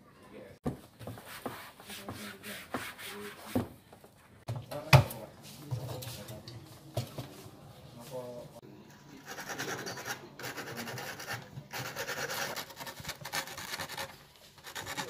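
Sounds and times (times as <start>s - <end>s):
rubbing and scraping: 9.1s - 15.0s.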